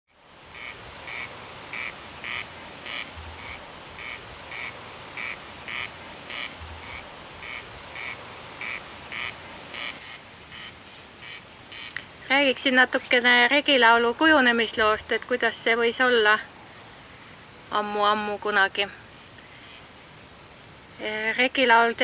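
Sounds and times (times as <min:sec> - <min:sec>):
animal calling: 0:00.5 - 0:12.0.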